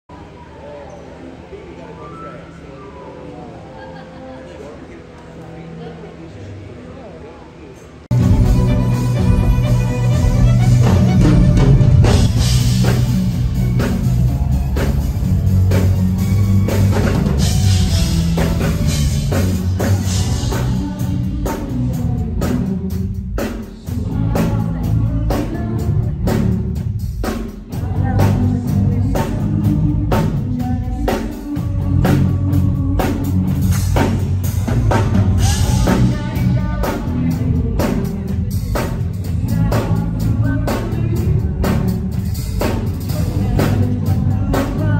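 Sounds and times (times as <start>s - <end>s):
keyboard: 0.1s - 44.9s
bass: 8.0s - 44.9s
string section: 8.1s - 20.5s
drum kit: 8.1s - 44.9s.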